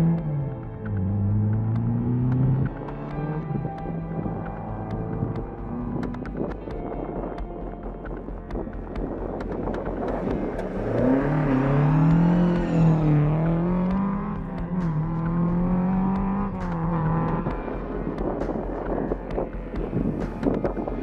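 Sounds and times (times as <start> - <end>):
rally car engine revving: 0.0 - 7.2, 8.5 - 21.0.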